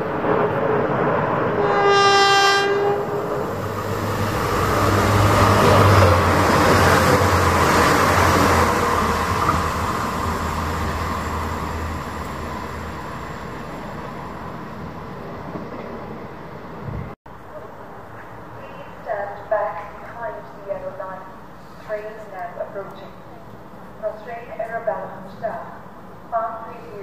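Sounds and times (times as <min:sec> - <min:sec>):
train passing with rail noise: 0:00.0 - 0:27.0
train horn: 0:01.6 - 0:03.4.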